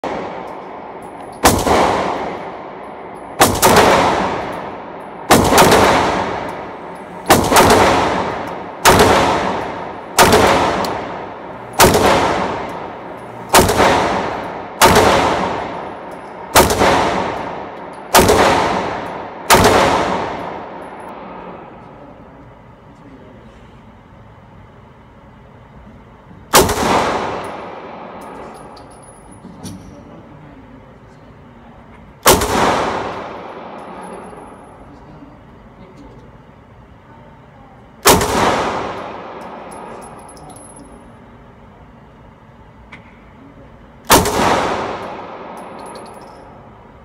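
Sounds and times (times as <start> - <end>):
pistol shots echoing indoors: 0.0 - 21.8, 26.5 - 29.3, 32.2 - 34.9, 38.0 - 41.5, 44.0 - 46.8.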